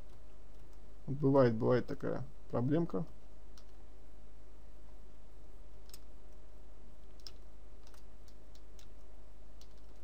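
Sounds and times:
mouse and keyboard clicks: 5.8s - 6.1s, 7.0s - 9.0s.

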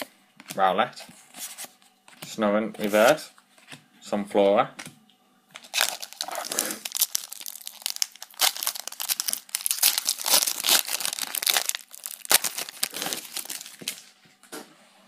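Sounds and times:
foil wrapper crinkling and tearing: 5.6s - 14.1s.

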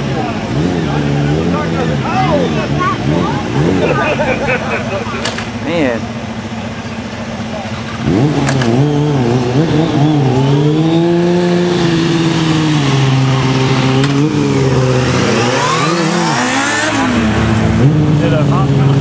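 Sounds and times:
motorcycle engine revving: 0.0s - 19.0s.

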